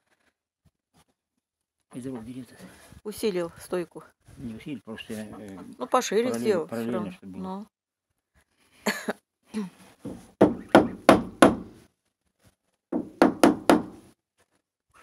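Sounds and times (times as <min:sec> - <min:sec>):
hammer blows on wood: 0:10.1 - 0:11.8.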